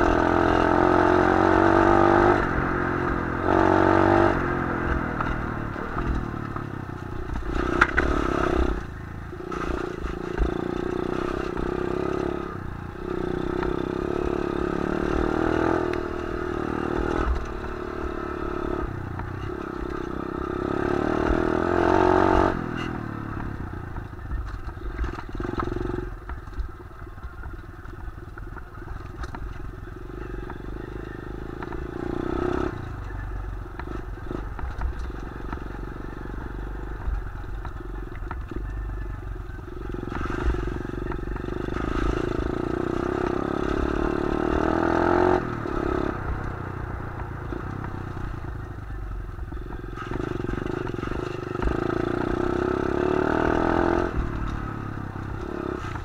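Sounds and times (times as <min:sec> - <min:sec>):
dirt bike engine revving: 0:00.0 - 0:06.6, 0:07.2 - 0:23.3, 0:39.7 - 0:48.7, 0:49.8 - 0:56.0.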